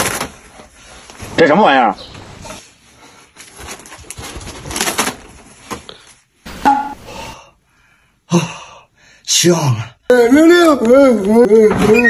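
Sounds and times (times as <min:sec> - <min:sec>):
bedding rustling: 0:00.0 - 0:06.2.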